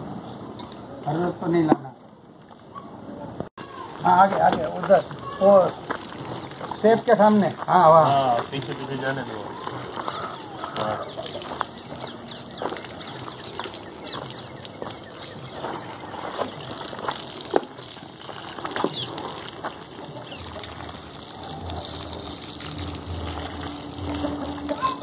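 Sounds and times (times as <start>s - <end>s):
water running from a hose: 3.6s - 25.0s
bird calls and chirps: 9.4s - 21.0s.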